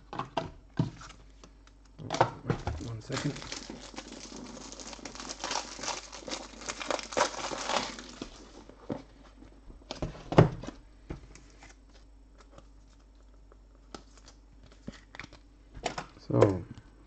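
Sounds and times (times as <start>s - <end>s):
card pack wrapper crinkling: 2.8s - 8.7s, 11.3s - 15.2s.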